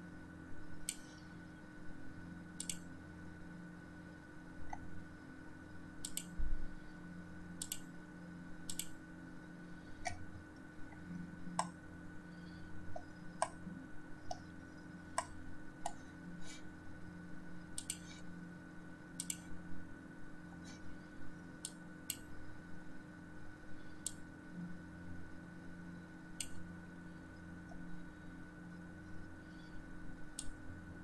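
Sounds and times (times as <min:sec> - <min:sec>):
faint hum: 0:00.0 - 0:31.0
computer mouse clicking: 0:00.8 - 0:01.2, 0:02.6 - 0:02.9, 0:06.0 - 0:06.4, 0:07.6 - 0:07.9, 0:08.6 - 0:09.0, 0:11.6 - 0:11.8, 0:12.9 - 0:13.6, 0:17.7 - 0:18.2, 0:19.2 - 0:19.5, 0:21.6 - 0:22.3, 0:26.4 - 0:26.6, 0:30.3 - 0:30.6.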